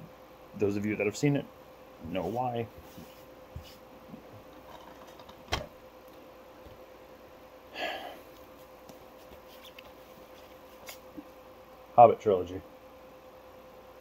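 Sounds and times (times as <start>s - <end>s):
faint steady hum: 0.0s - 14.0s
plastic cases rustling: 4.5s - 5.6s.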